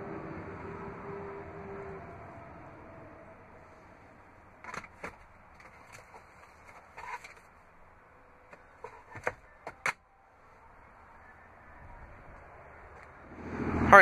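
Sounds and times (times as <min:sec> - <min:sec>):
glove box plastic clicks and knocks: 0:04.6 - 0:07.5, 0:08.5 - 0:10.0.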